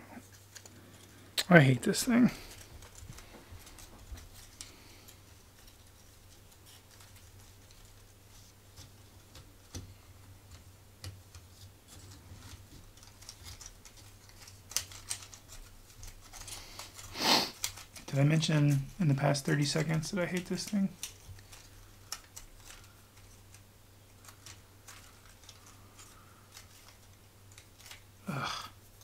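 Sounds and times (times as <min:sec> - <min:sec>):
wooden puzzle pieces clicking: 0:12.4 - 0:19.0, 0:19.7 - 0:28.1.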